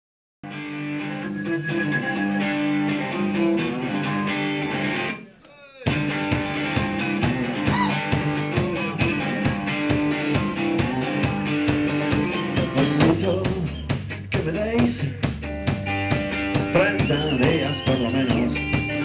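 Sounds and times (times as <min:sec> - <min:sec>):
electric guitar: 0:00.5 - 0:05.2, 0:05.9 - 0:19.0
drum kit beat: 0:05.8 - 0:19.0
electric bass: 0:05.9 - 0:19.0.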